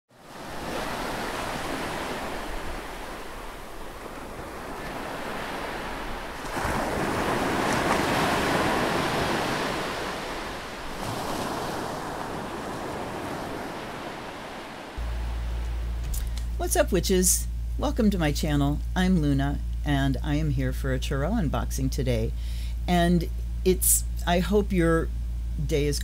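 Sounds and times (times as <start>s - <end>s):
ocean waves washing: 0.1s - 18.7s.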